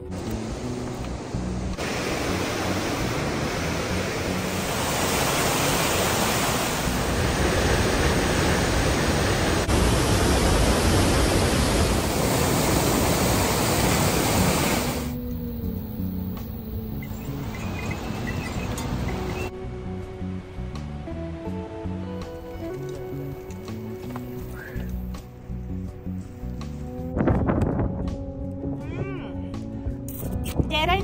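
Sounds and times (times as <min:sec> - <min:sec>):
waterfall rushing: 0:00.2 - 0:15.6, 0:16.8 - 0:19.5.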